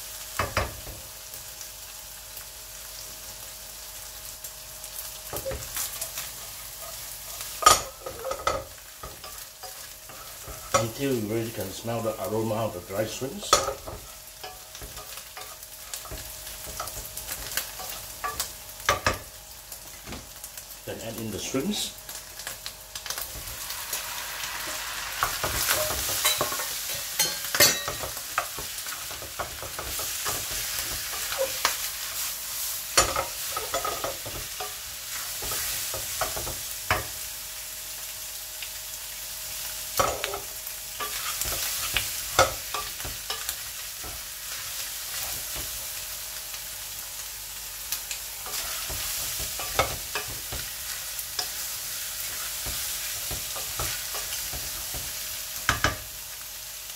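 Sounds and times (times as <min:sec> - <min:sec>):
shrimps sizzling in hot oil: 0:00.0 - 0:56.9
spatula scraping and knocking pan: 0:48.4 - 0:56.0.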